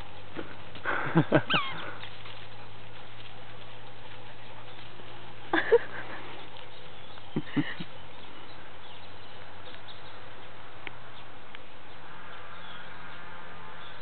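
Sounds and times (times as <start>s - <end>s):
faint bird calls: 1.4s - 2.1s.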